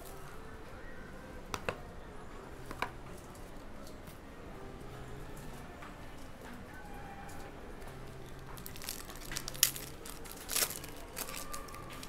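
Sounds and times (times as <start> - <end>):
foil wrapper crinkling: 8.5 - 12.0
foil wrapper ripping: 8.6 - 12.0.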